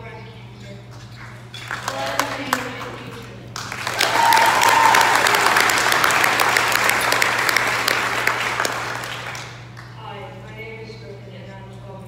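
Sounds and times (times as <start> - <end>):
audience applauding: 3.6 - 9.9.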